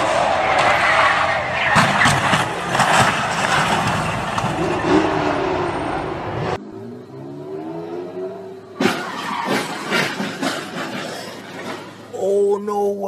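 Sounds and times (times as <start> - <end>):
car engine revving: 0.0 - 12.1
crackling knocks: 1.7 - 4.6.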